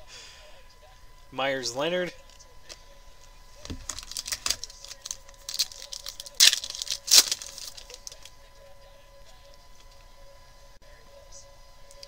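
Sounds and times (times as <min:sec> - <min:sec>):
foil pack crinkling: 0:03.6 - 0:08.3
foil pack ripping: 0:03.8 - 0:08.3
wrapper rustling: 0:03.8 - 0:08.3.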